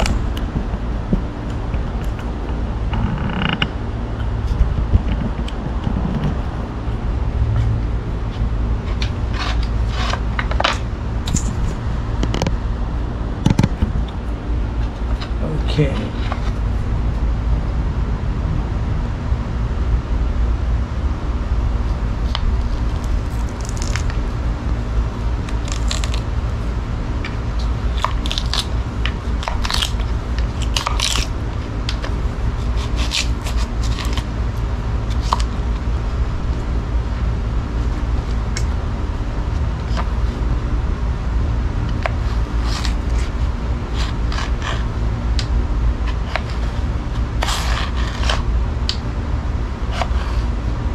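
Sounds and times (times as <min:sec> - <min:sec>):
low rumble: 0:00.0 - 0:32.6.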